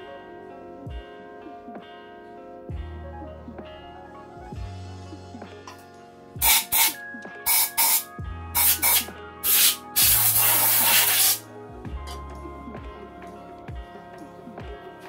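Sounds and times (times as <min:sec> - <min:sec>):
compressed air blasts: 0:06.4 - 0:11.4.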